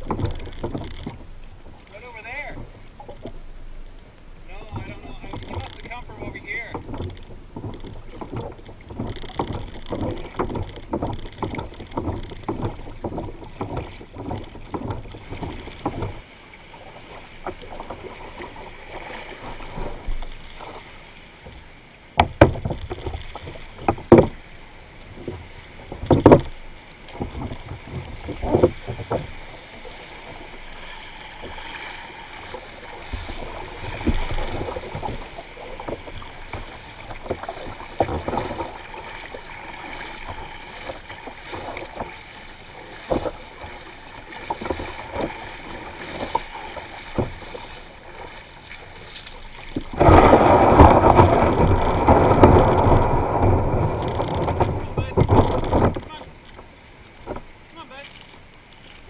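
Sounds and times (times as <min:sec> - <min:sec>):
water sloshing around a boat: 0:00.0 - 0:59.0
loud sharp knocks: 0:22.2 - 0:23.0.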